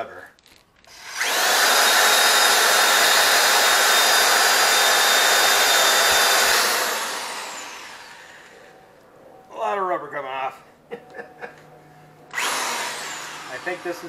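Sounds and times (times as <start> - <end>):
electric drill grinding rubber: 0.8 - 8.7, 12.3 - 14.0.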